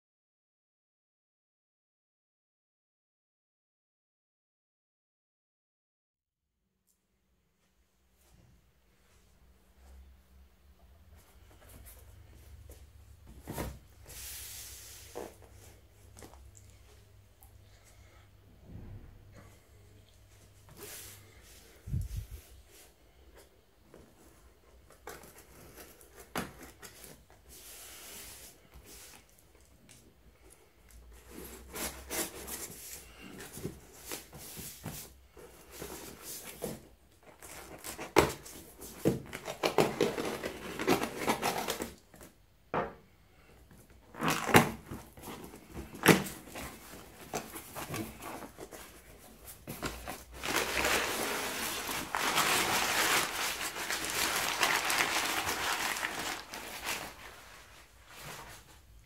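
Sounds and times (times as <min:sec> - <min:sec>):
packing paper rustling: 0:31.1 - 0:42.3, 0:44.1 - 0:58.7
tape scraping and tearing: 0:49.8 - 0:57.4.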